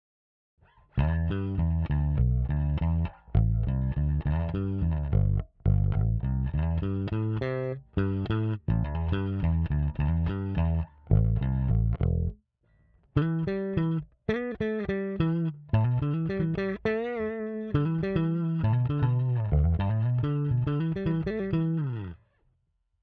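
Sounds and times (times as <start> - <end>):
electric bass plucked notes: 1.0 - 12.4, 13.2 - 22.2.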